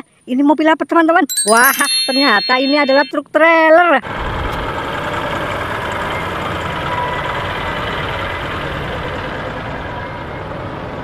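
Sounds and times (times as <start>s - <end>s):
truck diesel engine running: 4.1s - 11.0s.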